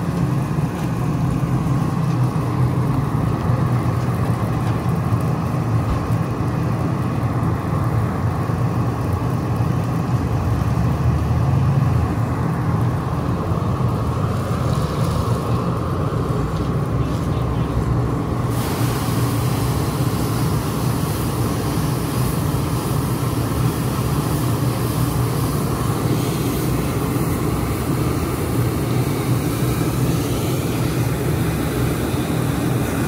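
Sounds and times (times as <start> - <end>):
fire engine diesel running: 0.0 - 33.0
hose stream hissing: 11.5 - 33.0.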